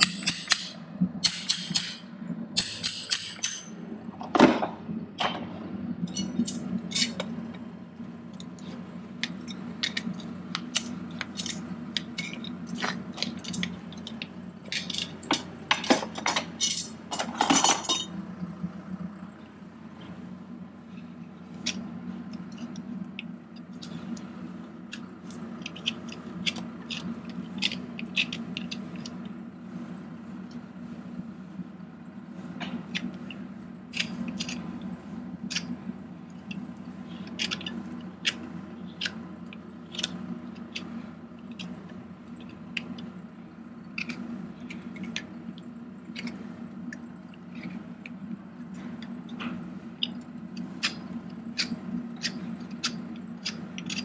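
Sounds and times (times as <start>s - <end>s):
steady low hum: 0.0s - 54.0s
hot horseshoe crackling and popping: 8.3s - 17.2s.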